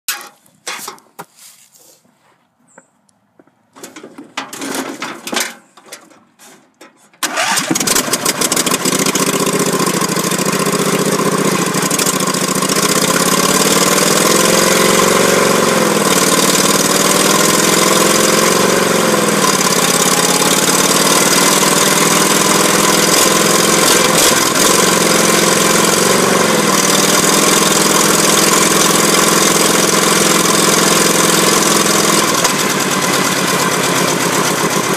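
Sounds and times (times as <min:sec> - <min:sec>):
knocking and rustling: 0:00.1 - 0:01.4, 0:02.7 - 0:07.2
lawn tractor engine running: 0:03.8 - 0:06.3, 0:07.2 - 0:34.9.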